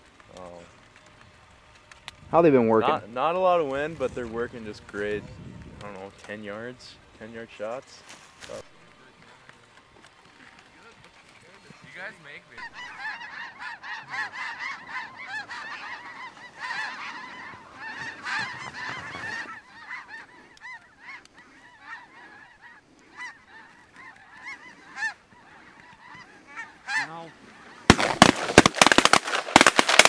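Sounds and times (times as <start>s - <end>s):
geese honking: 0.0s - 30.0s.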